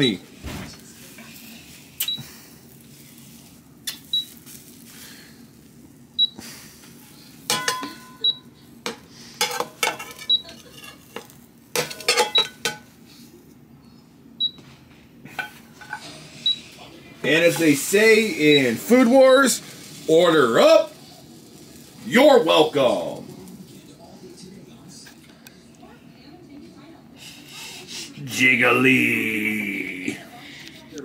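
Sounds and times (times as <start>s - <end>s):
pan and spatula scraping plate: 8.9s - 12.9s, 15.3s - 16.5s
cooktop short high beeps: 10.2s - 10.6s, 12.2s - 12.6s.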